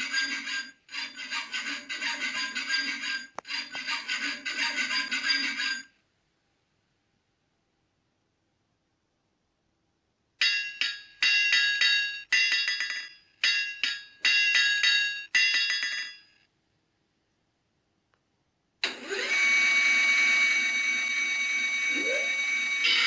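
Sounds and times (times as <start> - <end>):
metallic hammer strikes on anvil: 10.4 - 16.5.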